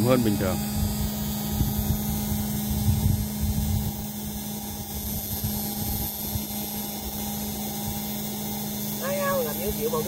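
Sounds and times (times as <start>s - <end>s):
paddlewheel aerators humming: 0.0s - 10.0s.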